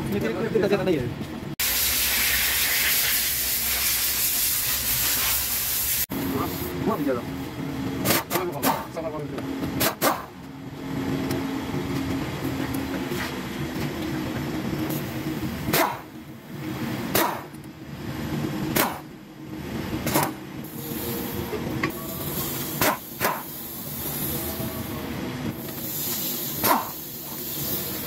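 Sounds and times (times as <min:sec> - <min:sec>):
steady low hum: 0:06.1 - 0:28.0.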